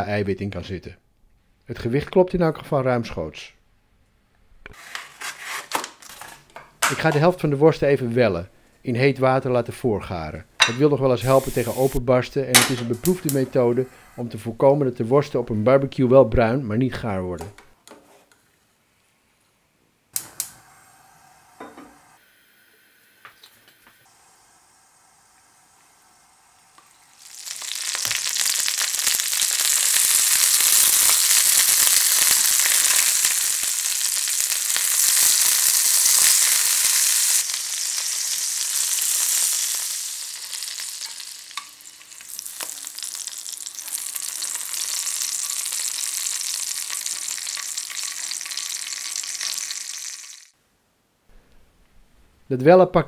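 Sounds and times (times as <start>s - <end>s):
sausages sizzling in frying pan: 11.2s - 12.0s, 24.1s - 50.6s.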